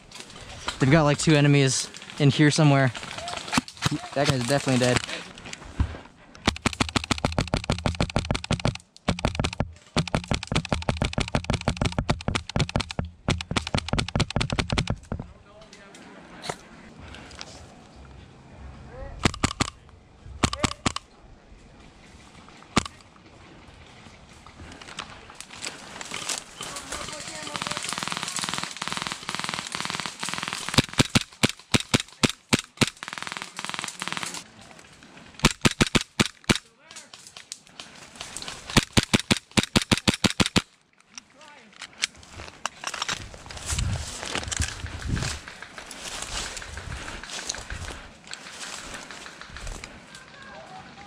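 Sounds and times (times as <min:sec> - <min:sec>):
airsoft rifle firing bursts: 0:06.4 - 0:15.1, 0:19.2 - 0:19.7, 0:27.2 - 0:34.4, 0:35.4 - 0:36.6, 0:38.6 - 0:40.6.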